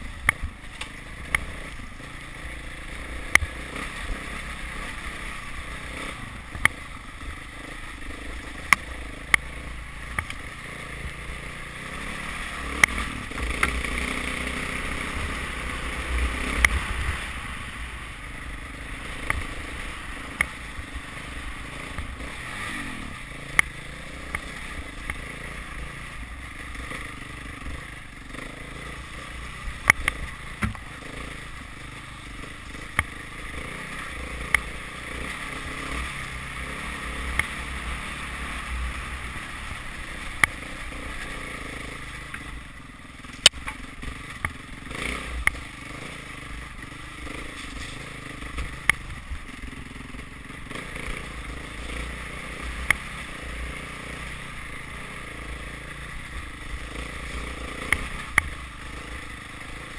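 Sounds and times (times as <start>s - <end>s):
motorcycle engine running: 0.0s - 59.9s
steady rush of noise: 0.0s - 59.9s.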